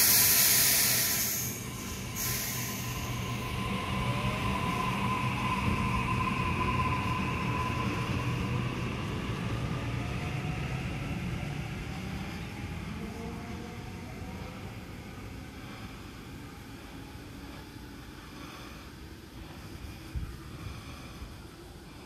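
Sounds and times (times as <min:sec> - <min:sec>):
high electric train whine: 0:00.0 - 0:22.0
train wheels rumbling on track: 0:00.0 - 0:22.0.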